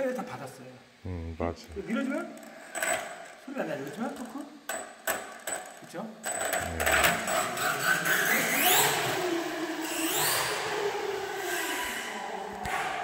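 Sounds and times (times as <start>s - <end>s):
electric toy car motor whining: 6.6s - 12.7s.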